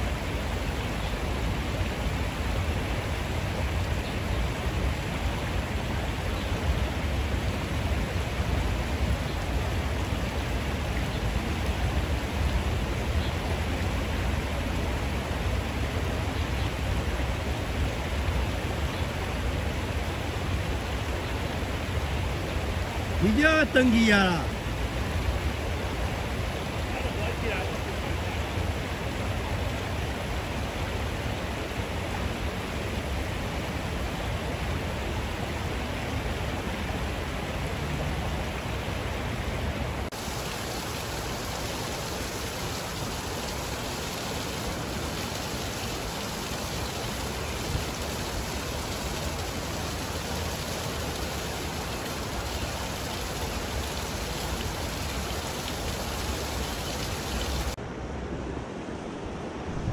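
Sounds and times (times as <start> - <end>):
river flowing over rocks: 0.0 - 57.8.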